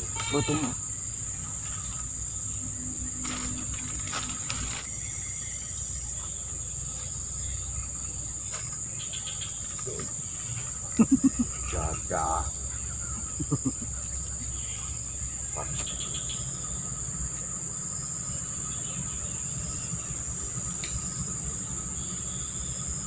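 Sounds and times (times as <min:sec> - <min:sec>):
insects chirring: 0:00.0 - 0:23.0
man's voice: 0:11.7 - 0:12.5.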